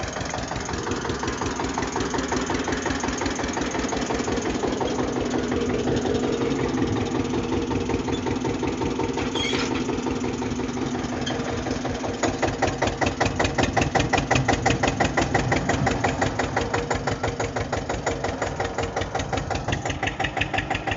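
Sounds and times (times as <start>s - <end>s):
tractor engine chugging: 0.0s - 20.9s.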